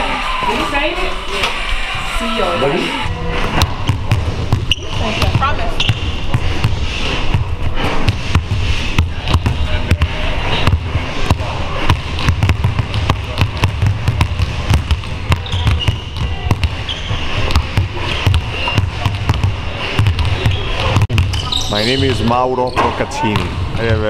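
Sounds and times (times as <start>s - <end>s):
basketballs bouncing on hardwood: 3.5s - 22.4s.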